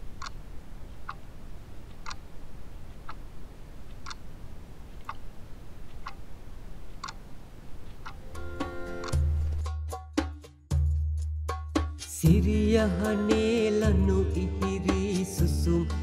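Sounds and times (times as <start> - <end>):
low steady hum: 0.0 - 9.6
clock ticking: 0.0 - 10.3.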